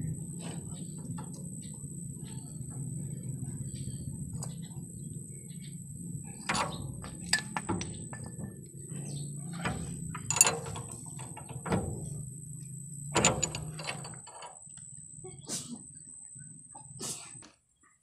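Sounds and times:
steady low hum: 0:00.0 - 0:17.6
metal wrenches clinking: 0:06.5 - 0:08.4, 0:09.6 - 0:12.2, 0:13.2 - 0:14.6.

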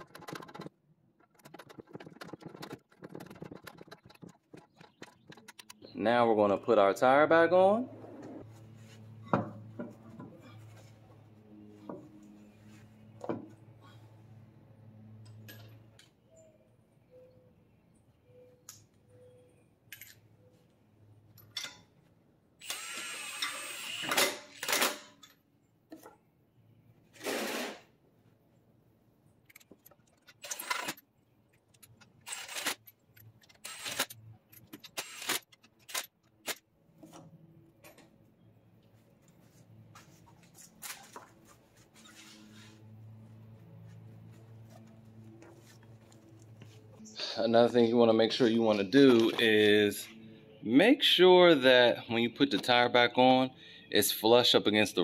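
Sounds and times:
impact wrench bursts: 0:22.6 - 0:25.1, 0:33.5 - 0:34.2, 0:34.8 - 0:36.0.

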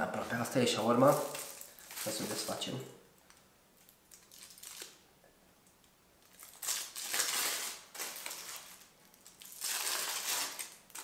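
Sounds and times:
foil and plastic bag crinkling: 0:00.8 - 0:03.4, 0:04.1 - 0:05.0, 0:06.2 - 0:11.0.

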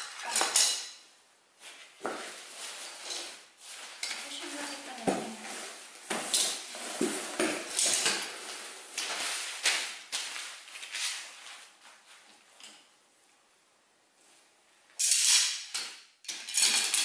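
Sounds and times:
metal poles clinking: 0:00.0 - 0:01.1, 0:06.1 - 0:09.9
fabric rustling: 0:01.6 - 0:12.3.

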